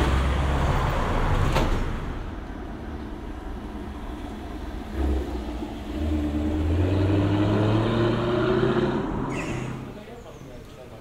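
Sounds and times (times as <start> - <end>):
car driving past: 3.6 - 10.1.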